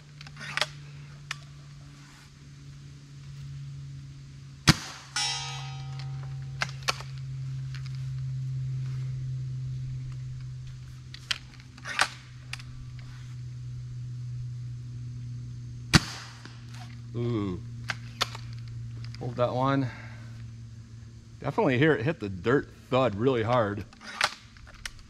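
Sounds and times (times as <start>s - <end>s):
ringing tone: 5.2s - 7.4s.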